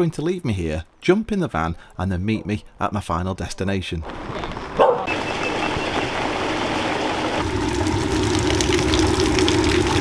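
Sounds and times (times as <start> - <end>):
water running: 5.1 - 10.0
water spouting and splashing: 5.1 - 10.0.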